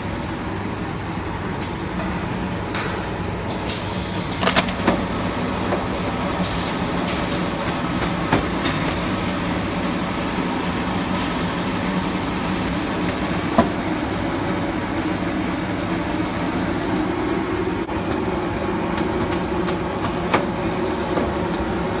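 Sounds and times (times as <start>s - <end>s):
machine whirring: 16.9s - 22.0s.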